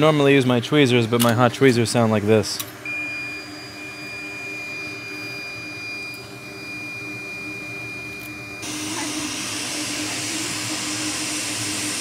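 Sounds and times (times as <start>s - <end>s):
high-pitched electronic whine: 2.9s - 12.0s.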